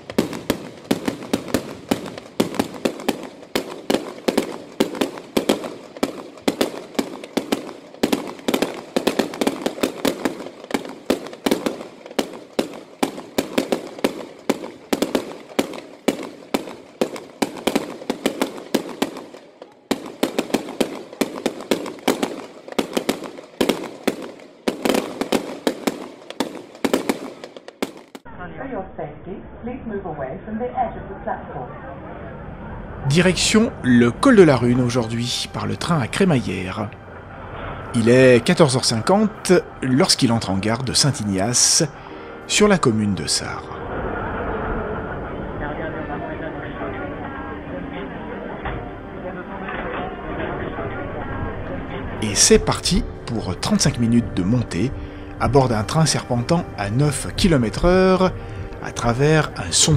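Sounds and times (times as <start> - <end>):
fireworks bangs and crackles: 0.0 - 28.3, 37.8 - 43.7, 51.3 - 59.9.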